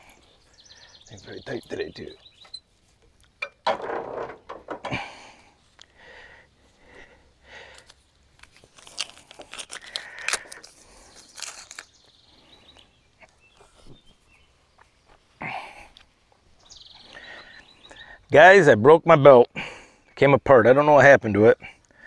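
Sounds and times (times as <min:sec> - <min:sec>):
hands handling rubber belt: 0:07.7 - 0:12.0
footsteps crunching: 0:13.2 - 0:17.2.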